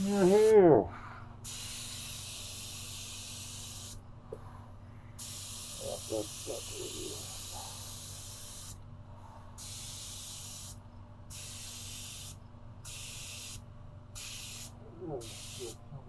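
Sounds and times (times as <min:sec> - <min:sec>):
steady low hum: 0:00.0 - 0:16.0
paint spray gun hissing: 0:01.4 - 0:04.0, 0:05.2 - 0:08.8, 0:09.6 - 0:13.6, 0:14.2 - 0:15.8.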